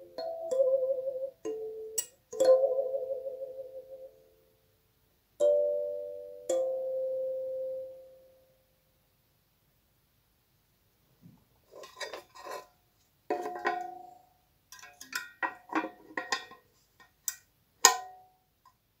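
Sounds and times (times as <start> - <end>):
metal tin lid clinking and knocking: 11.7 - 12.7, 13.3 - 18.2.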